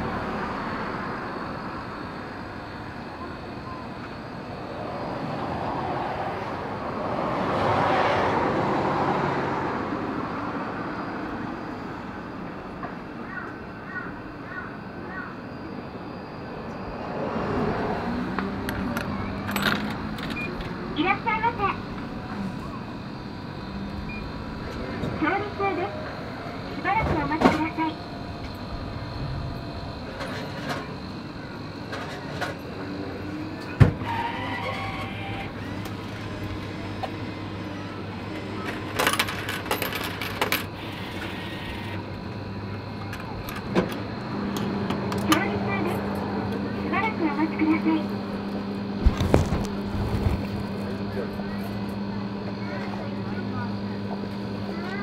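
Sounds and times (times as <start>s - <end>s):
street traffic: 0.0s - 55.0s
vending machine humming: 0.0s - 55.0s
coins clinking into vending machine: 18.9s - 20.6s, 38.6s - 41.8s.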